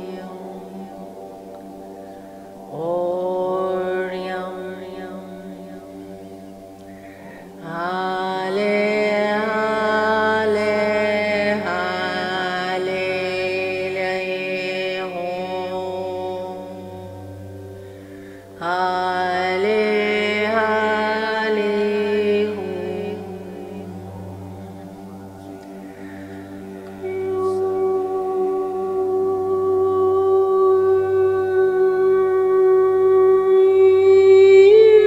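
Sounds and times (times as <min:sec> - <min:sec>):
faint low drone: 0:00.0 - 0:35.0
person chanting long vowel notes: 0:00.0 - 0:35.0.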